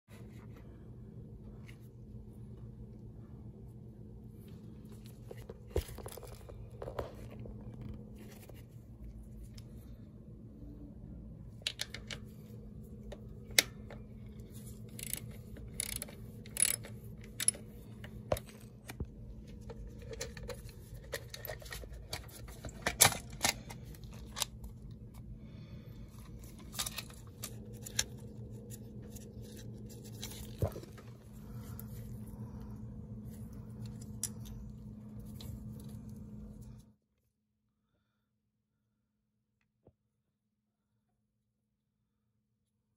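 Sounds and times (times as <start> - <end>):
steady low hum: 0.1 - 37.0
hand tool clicks and scrapes: 14.8 - 17.7.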